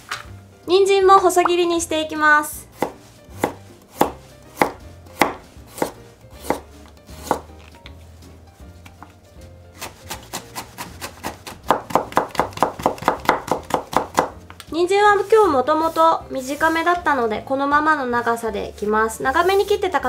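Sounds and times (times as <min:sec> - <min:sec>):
knife chopping on wooden board: 0:02.7 - 0:07.7, 0:09.8 - 0:14.5.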